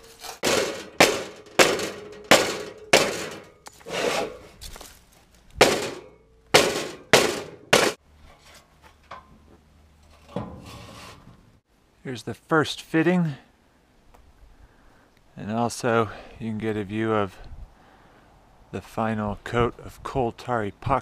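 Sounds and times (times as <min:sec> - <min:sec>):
rubber mallet clanging on steel: 0:00.3 - 0:03.7, 0:05.6 - 0:08.0.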